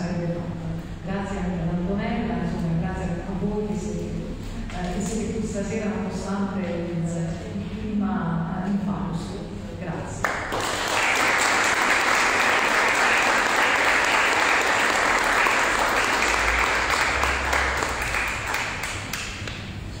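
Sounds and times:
audience applauding: 10.2 - 19.7.

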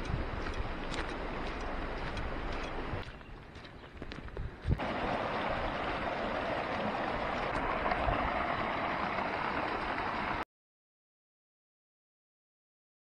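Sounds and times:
stream water rushing: 0.0 - 3.7, 4.7 - 10.4.

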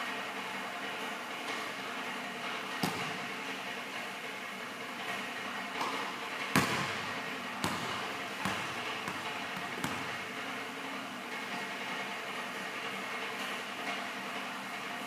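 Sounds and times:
basketball bouncing on wooden floor: 2.8 - 3.3, 6.5 - 10.4.

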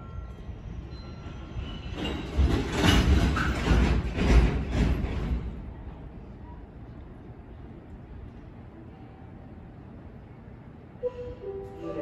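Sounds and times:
train brake squeal: 11.0 - 12.0.

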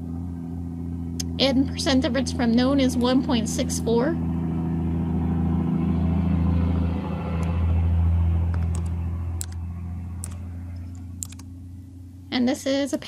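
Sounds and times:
deep rumble: 0.0 - 12.8
keyboard keystrokes: 8.6 - 9.6, 11.2 - 11.5.

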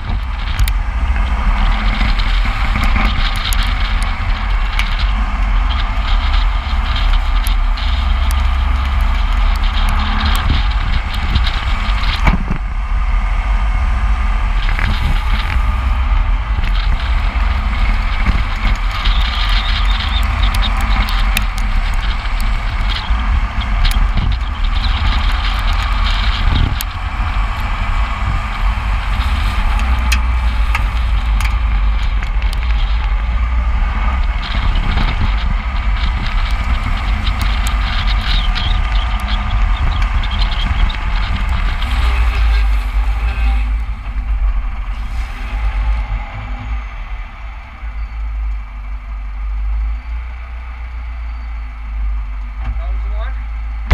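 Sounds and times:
wind buffeting microphone: 0.0 - 52.5
car road and tyre noise: 0.0 - 53.9
small ticks: 0.1 - 12.4, 16.6 - 33.4, 34.0 - 44.3.

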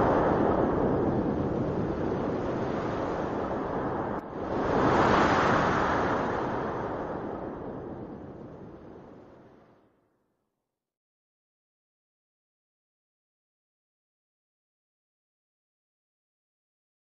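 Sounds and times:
steady rushing noise: 0.0 - 9.7.

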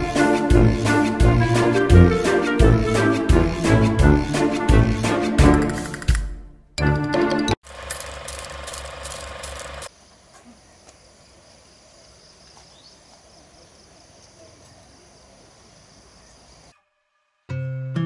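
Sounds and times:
music with clicking beat: 0.1 - 7.6
faint outdoor ambience: 7.7 - 17.5
high insect drone: 8.1 - 16.7.

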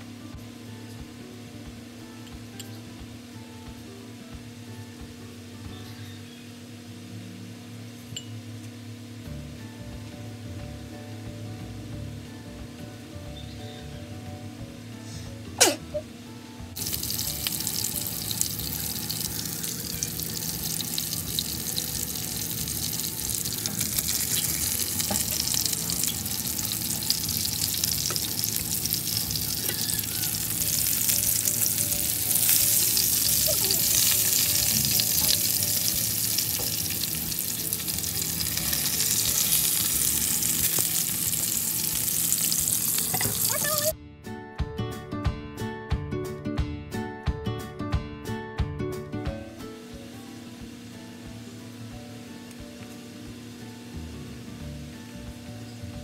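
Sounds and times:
food sizzling in grill pan: 16.8 - 43.9.

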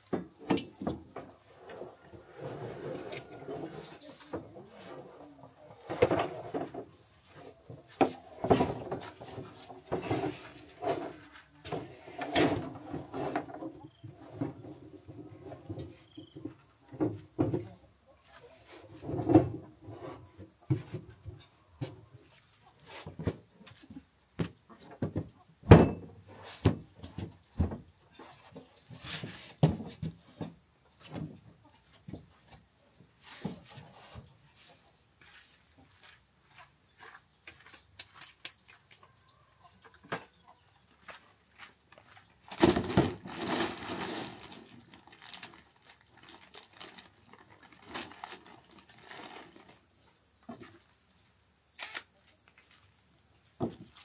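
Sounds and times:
rustling clatter: 42.5 - 49.9.

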